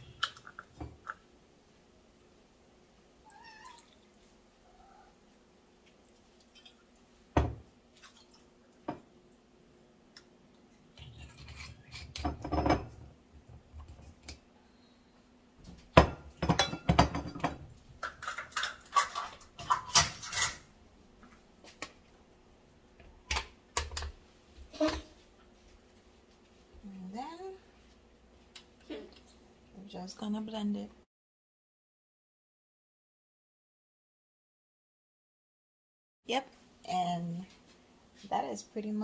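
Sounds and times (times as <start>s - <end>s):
glass and bottles knocking on counter: 7.4s - 7.6s, 12.3s - 13.0s, 16.0s - 17.6s.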